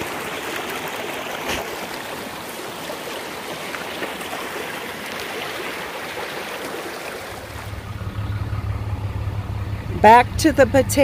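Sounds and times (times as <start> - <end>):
creek flowing over rocks: 0.0 - 10.2
truck engine idling: 7.2 - 11.0.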